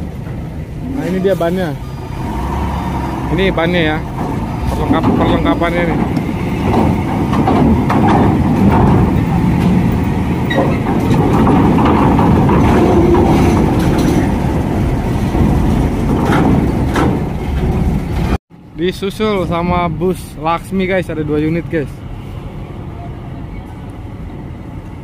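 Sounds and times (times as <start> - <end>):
diesel truck engine rumbling: 0.0 - 25.0
knocks and clanks from ramp plates: 3.9 - 18.4.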